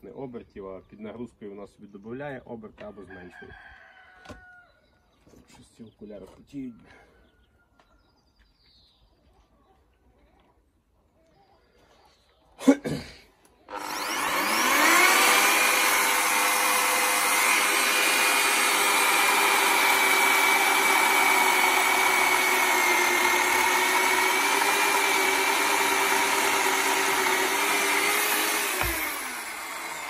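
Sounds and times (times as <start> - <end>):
electric chainsaw cutting log: 13.7 - 30.0.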